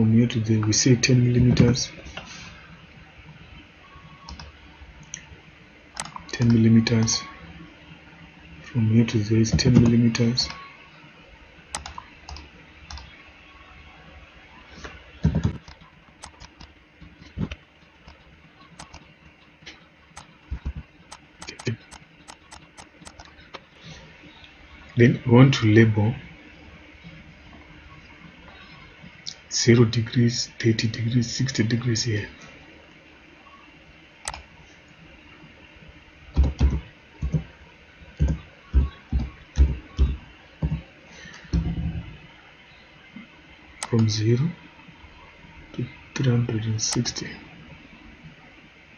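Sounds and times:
keyboard typing: 4.2 - 4.5, 6.0 - 6.6, 11.7 - 13.1, 15.2 - 16.7, 17.3 - 19.1, 20.2 - 23.6, 36.4 - 37.5
mouse and keyboard clicks: 15.3 - 16.7, 18.8 - 19.1, 20.2 - 23.3.

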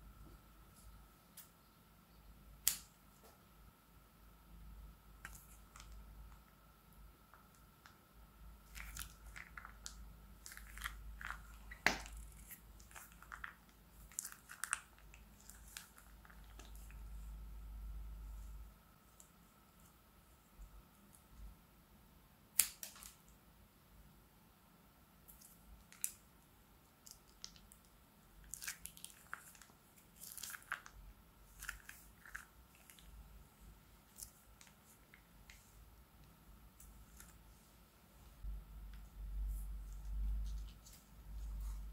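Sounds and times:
slime wet crackles and pops: 8.6 - 17.0, 22.6 - 23.4, 25.2 - 26.2, 27.0 - 33.2.

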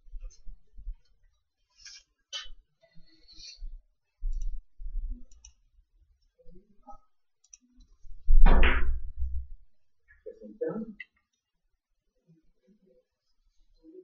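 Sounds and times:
low thumps: 8.2 - 9.6.

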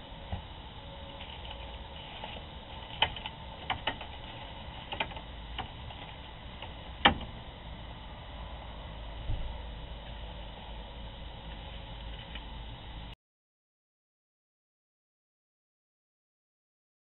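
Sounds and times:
faint hum: 0.0 - 13.2
steady hiss: 0.0 - 13.2.

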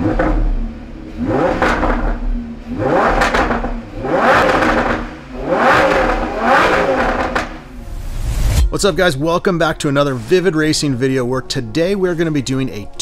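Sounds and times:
car engine revving: 0.0 - 8.7.

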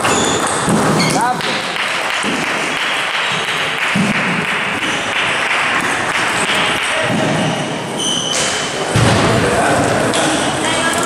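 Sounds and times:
murmur of voices: 5.1 - 11.0
high squeak: 7.9 - 8.7.

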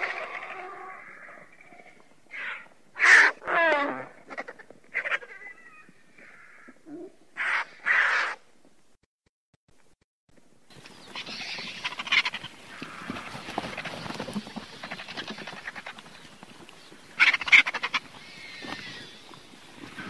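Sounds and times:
vultures rapid rattling: 0.0 - 1.6, 10.8 - 20.0
vultures hissing calls: 0.0 - 8.4, 10.9 - 16.3, 17.0 - 20.0.

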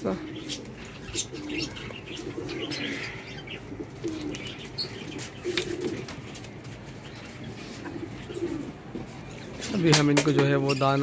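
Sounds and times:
pigeons cooing: 0.0 - 10.0.

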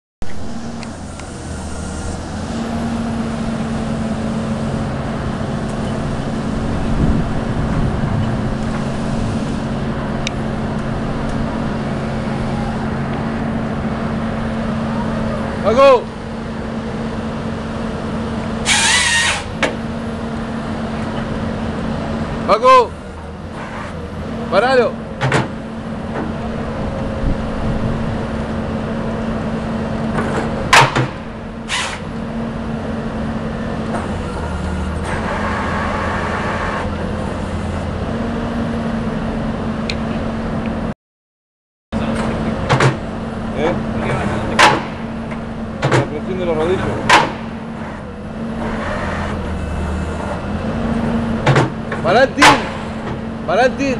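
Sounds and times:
high hydraulic whine: 0.2 - 38.0
diesel engine and hydraulics: 0.2 - 41.0, 42.0 - 53.9.

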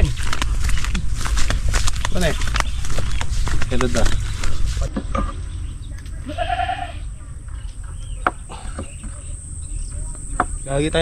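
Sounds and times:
goat bleating: 6.2 - 7.1.

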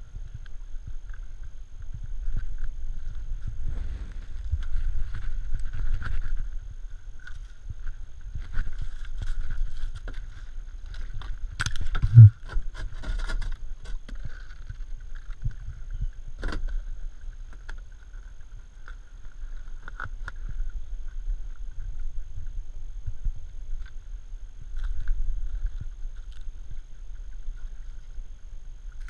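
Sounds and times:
low rumble: 11.9 - 12.4.

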